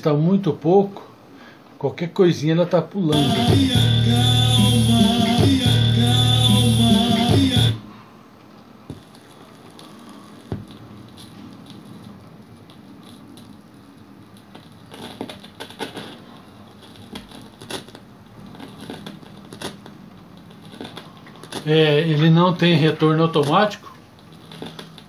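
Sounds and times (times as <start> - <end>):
vinyl surface hiss: 3.0 - 25.0
vinyl crackles and pops: 8.4 - 25.0.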